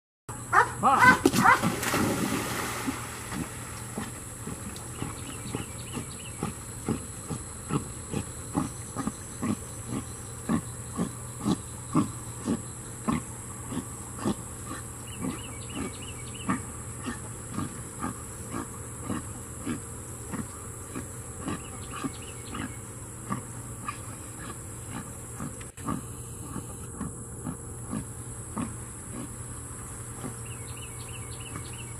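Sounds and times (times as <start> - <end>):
high insect drone: 0.3 - 31.9
dog splashing into water: 1.0 - 4.0.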